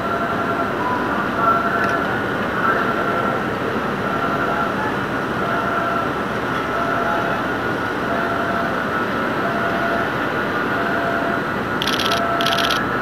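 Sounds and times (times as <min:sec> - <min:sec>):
ship machinery rumble and hiss: 0:00.0 - 0:13.0
faint high whine: 0:10.8 - 0:13.0.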